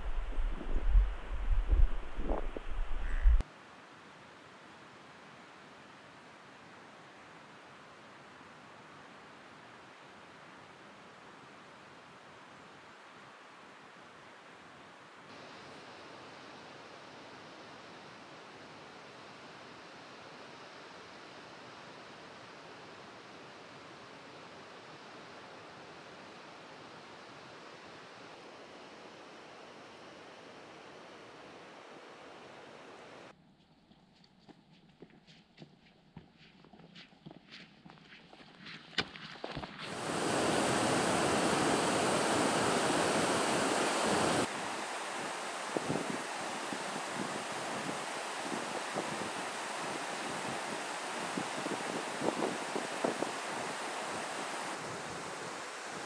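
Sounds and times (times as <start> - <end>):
rushing water: 0.0 - 3.4, 39.5 - 56.0
low outdoor hiss: 0.0 - 56.0.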